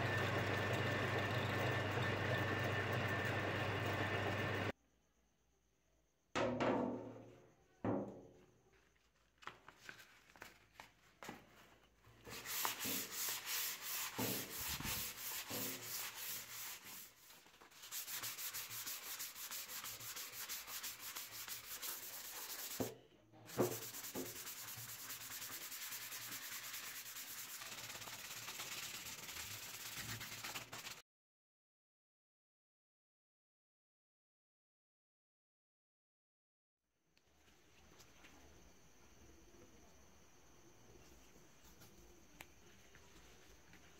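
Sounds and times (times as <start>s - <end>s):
sandpaper rubbing on wood: 12.3s - 22.9s, 23.5s - 31.0s.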